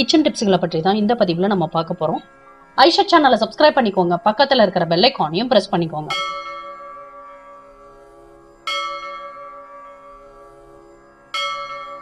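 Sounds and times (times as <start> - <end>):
bell ringing: 6.1 - 7.8, 8.7 - 10.4, 11.4 - 12.0.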